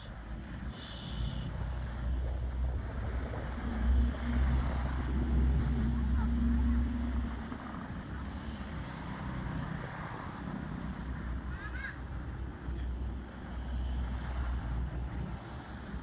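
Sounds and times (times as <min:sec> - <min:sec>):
steady outdoor hiss: 0:00.0 - 0:16.0
wind buffeting microphone: 0:00.0 - 0:16.0.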